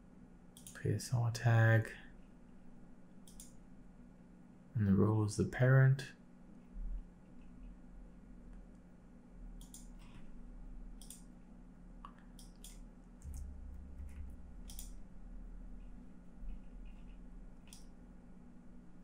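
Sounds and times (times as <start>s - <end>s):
low electrical hum: 0.0s - 19.0s
computer mouse clicks: 0.5s - 0.8s, 3.2s - 3.6s, 9.6s - 10.4s, 11.0s - 11.3s, 12.0s - 15.0s, 15.8s - 18.0s.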